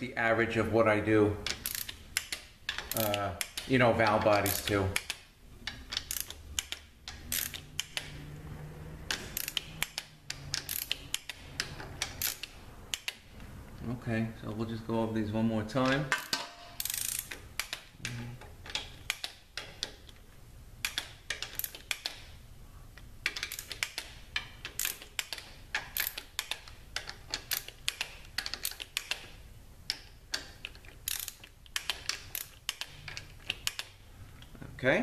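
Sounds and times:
torque wrench ratcheting clicks: 1.5s - 3.7s, 4.3s - 8.1s, 9.1s - 13.2s, 16.2s - 17.8s, 20.8s - 22.2s, 23.2s - 29.3s, 29.9s - 33.9s.

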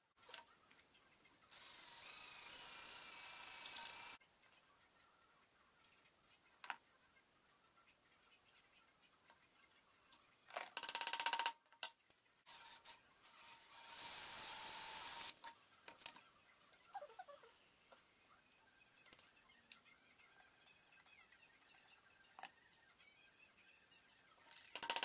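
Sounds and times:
cordless drill boring wood: 1.5s - 4.2s, 12.5s - 15.4s
tools clicking and knocking: 10.5s - 12.0s, 24.5s - 25.0s.

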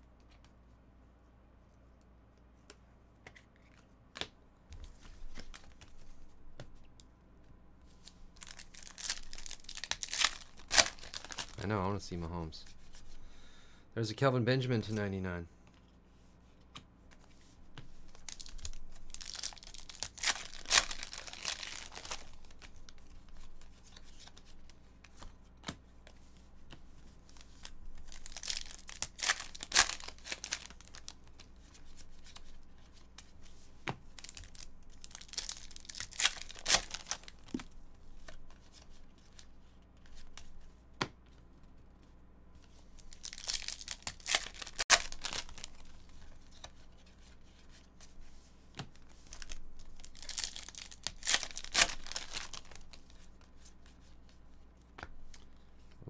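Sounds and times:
foil packs tearing and crinkling: 8.4s - 11.7s, 18.2s - 22.7s, 28.1s - 31.1s, 34.2s - 37.5s, 43.0s - 45.8s, 49.3s - 53.0s.

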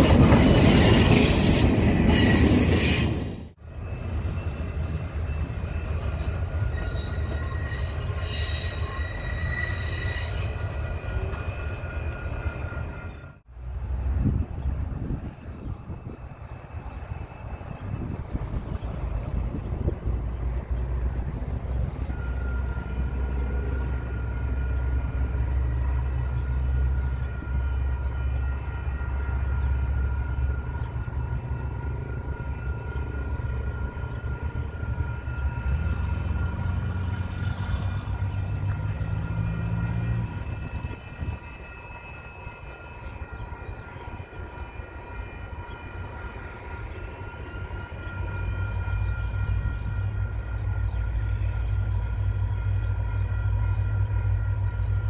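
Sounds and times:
crossing warning bells ringing: 0.0s - 55.0s
distant locomotive approaching: 0.0s - 55.0s
wind rumbling on microphone: 13.7s - 22.1s.

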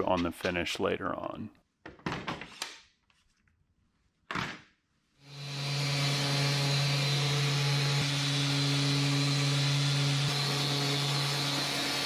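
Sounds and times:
orbital sander on wood: 5.2s - 12.0s.

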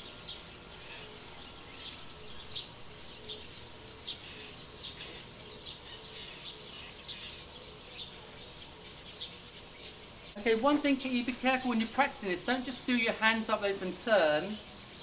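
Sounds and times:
bird chirping: 0.0s - 11.1s.

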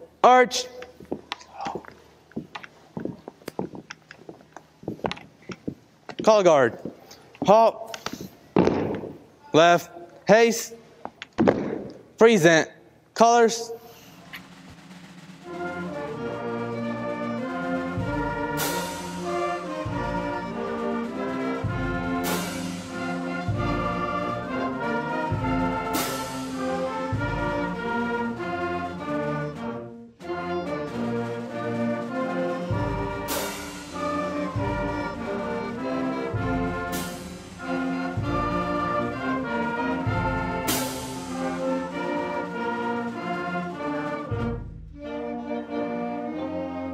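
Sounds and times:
wind band with brass: 13.3s - 46.9s.

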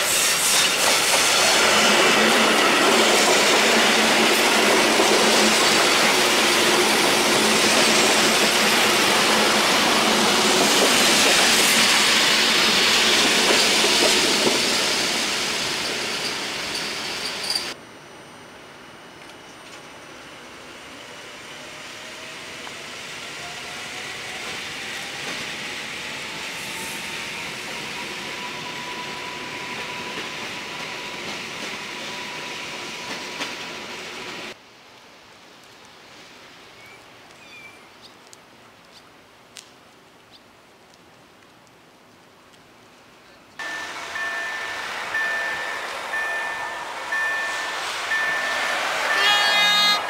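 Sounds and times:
train wheels rolling: 0.0s - 17.8s, 21.6s - 34.6s, 43.6s - 50.0s
level-crossing warning bell ringing: 43.6s - 50.0s
traction motors whining: 43.6s - 50.0s.

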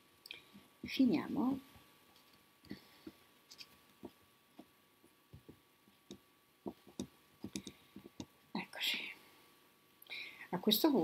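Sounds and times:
fingers clicking and tapping thread: 5.3s - 8.4s.

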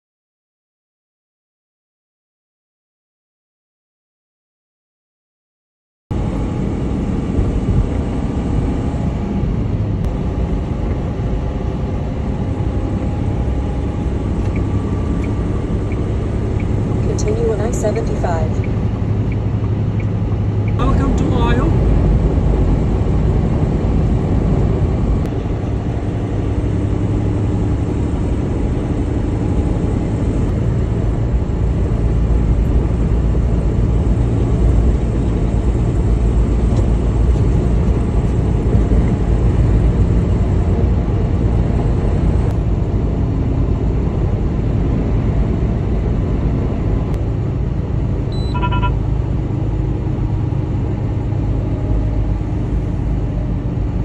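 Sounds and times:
road rumble: 6.1s - 54.0s
truck diesel engine drone: 6.1s - 54.0s.

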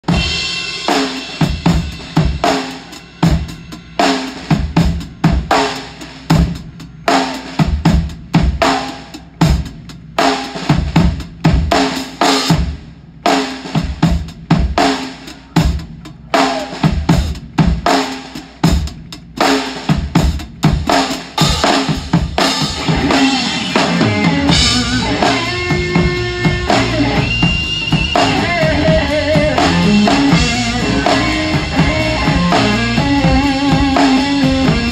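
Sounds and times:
bass guitar: 0.0s - 34.9s
rock drum kit: 0.0s - 34.9s
electric guitar sustained notes: 22.8s - 34.9s.

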